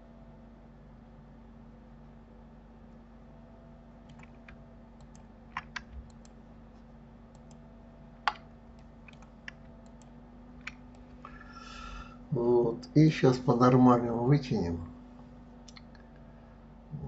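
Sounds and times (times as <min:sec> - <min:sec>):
low electrical hum: 0:00.0 - 0:17.0
keyboard and mouse clicks: 0:04.0 - 0:06.4, 0:07.3 - 0:07.6, 0:08.2 - 0:11.4.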